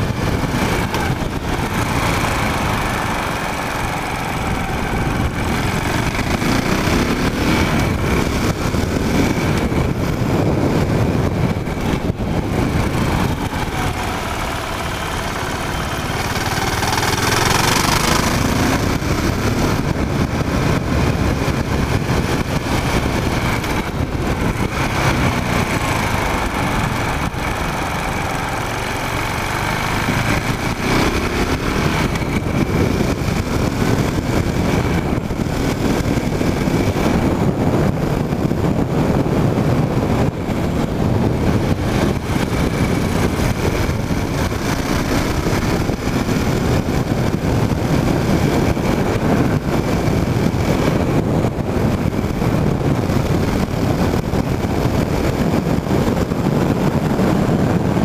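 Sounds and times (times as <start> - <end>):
motorcycle engine revving: 0.0 - 58.0
road noise: 0.0 - 58.0
wind noise: 0.0 - 58.0.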